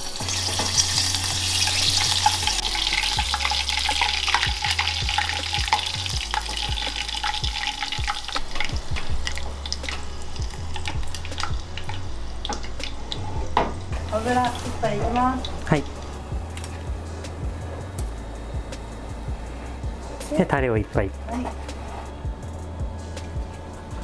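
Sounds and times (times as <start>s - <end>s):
oil sizzling with sharp pops: 0.0s - 16.8s.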